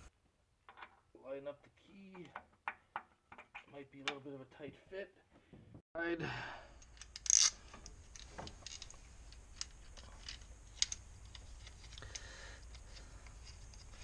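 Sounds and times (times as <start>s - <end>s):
metal parts clicking and tapping: 6.8s - 14.0s.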